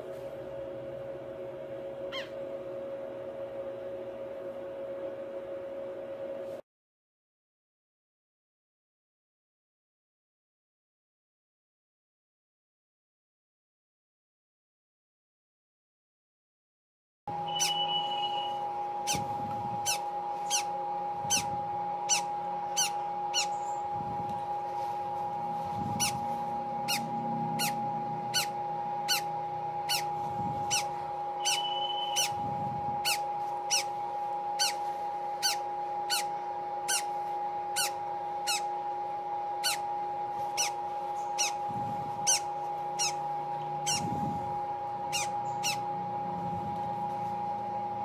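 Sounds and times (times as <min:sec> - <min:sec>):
steady hum: 0:00.0 - 0:06.6, 0:17.3 - 0:48.0
parrot chick peeping: 0:02.1 - 0:02.4, 0:17.5 - 0:21.5, 0:22.1 - 0:23.8, 0:26.0 - 0:26.2, 0:26.8 - 0:32.4, 0:33.0 - 0:34.0, 0:34.6 - 0:38.7, 0:39.6 - 0:44.1, 0:45.1 - 0:45.9.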